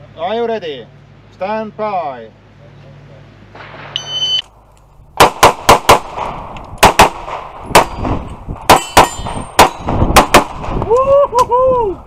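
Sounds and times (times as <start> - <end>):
pistol shots: 5.2 - 10.8
bullets ringing on steel plates: 8.7 - 9.9.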